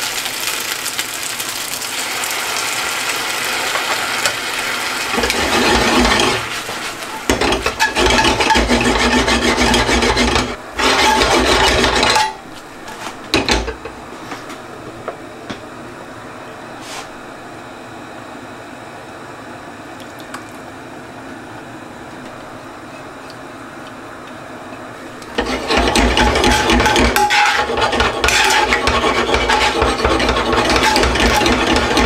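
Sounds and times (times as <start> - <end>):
pasta sizzling in a pan: 0.0 - 8.8
utensil scraping a pan: 5.1 - 13.2, 25.3 - 32.0.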